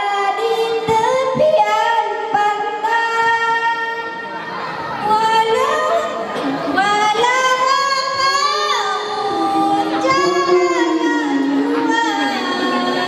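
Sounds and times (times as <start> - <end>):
women singing together: 5.0 - 13.0.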